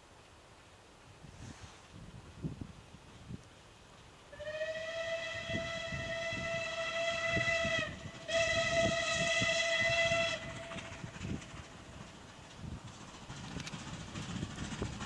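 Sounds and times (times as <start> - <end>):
steam locomotive whistle blasts: 4.3 - 11.0.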